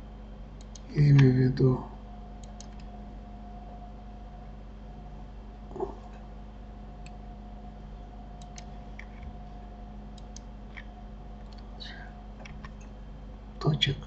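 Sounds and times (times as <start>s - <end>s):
steady background hum: 0.0s - 14.0s
mouse and keyboard clicks: 2.4s - 2.9s.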